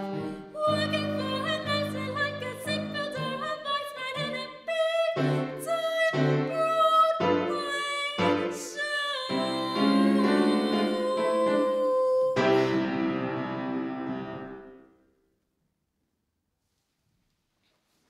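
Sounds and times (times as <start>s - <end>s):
piano accompaniment: 0.0s - 4.4s, 5.2s - 14.8s
girl singing: 0.0s - 12.8s.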